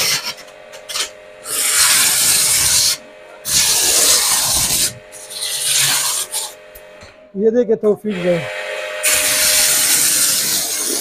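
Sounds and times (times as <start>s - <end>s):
pressure washer water jet hissing: 0.0s - 6.8s, 8.1s - 11.0s.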